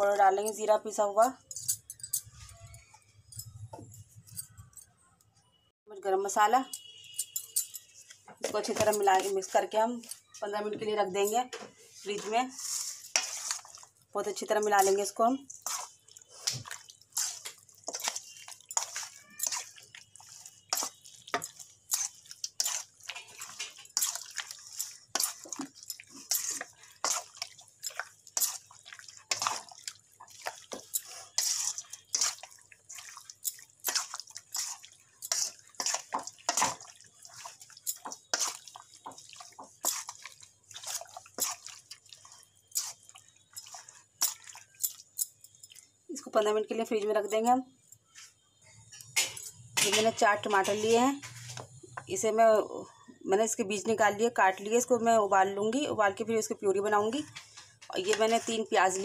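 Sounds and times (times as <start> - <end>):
hand squelching wet marinade: 12.0 - 45.9.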